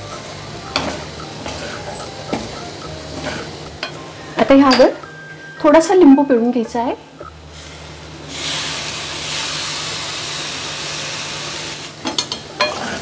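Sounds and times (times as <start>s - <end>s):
juice sizzling in hot pan: 7.5s - 13.0s.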